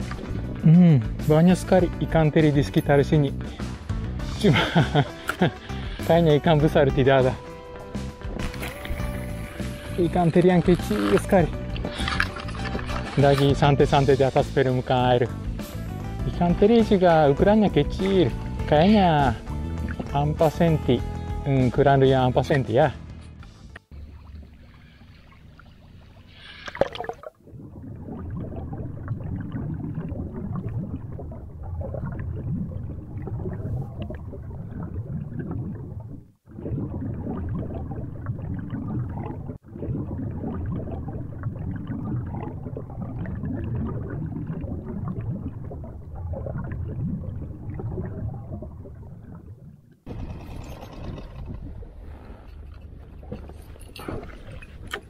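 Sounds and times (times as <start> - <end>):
muffled underwater churning: 0.0 - 22.8, 23.8 - 55.0
water splash: 4.4 - 15.0, 23.9 - 55.0.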